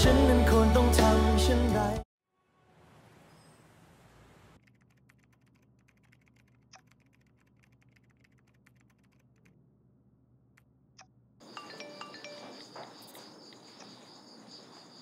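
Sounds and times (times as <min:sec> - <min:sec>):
typing on laptop keyboard: 0:04.6 - 0:09.6.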